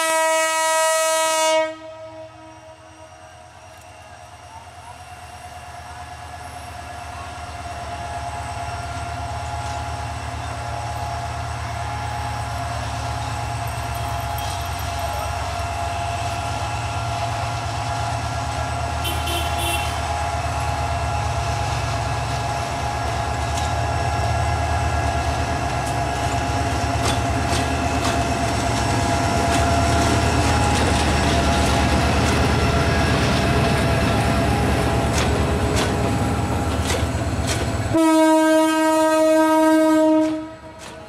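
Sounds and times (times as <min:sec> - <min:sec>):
locomotive whine: 0:00.0 - 0:41.0
wheels clicking over rail joints: 0:12.4 - 0:15.7, 0:22.3 - 0:23.9, 0:25.2 - 0:38.0, 0:40.2 - 0:41.0.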